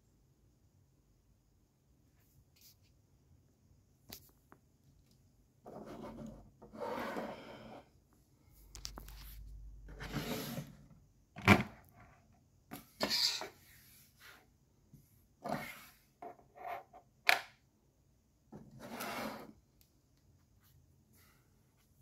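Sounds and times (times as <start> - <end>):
rubbing and scraping noises: 5.6 - 7.9.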